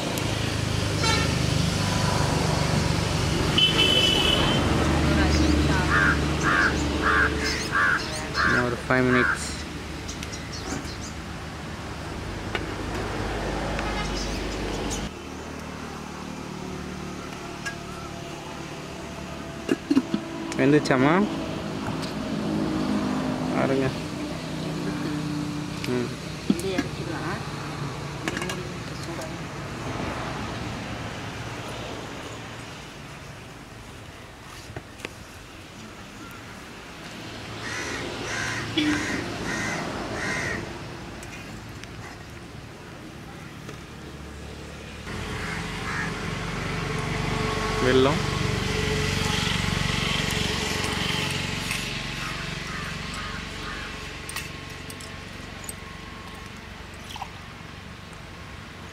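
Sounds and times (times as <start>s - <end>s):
crow cawing: 5.9s - 9.5s, 37.6s - 40.7s, 45.2s - 46.3s, 52.2s - 54.1s.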